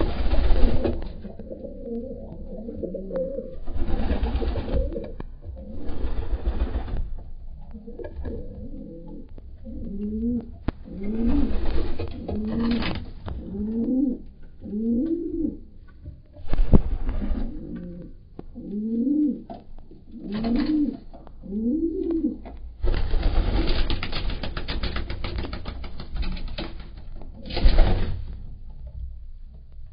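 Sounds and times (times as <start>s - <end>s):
pigeon cooing: 0.0s - 6.9s, 7.6s - 15.8s, 17.0s - 22.6s
wings flapping and scuffling: 0.0s - 15.2s, 15.9s - 18.0s, 19.5s - 29.0s.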